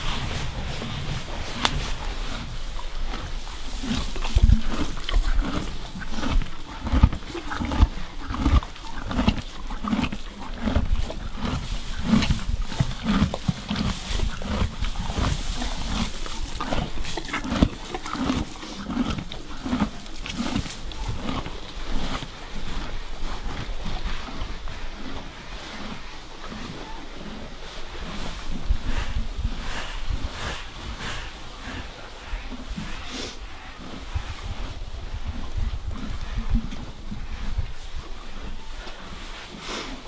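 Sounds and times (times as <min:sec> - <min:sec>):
brush strokes on horse coat: 0:00.0 - 0:06.6, 0:09.6 - 0:24.3, 0:37.5 - 0:40.0
horse breathing: 0:00.0 - 0:40.0
horse chewing: 0:00.0 - 0:40.0.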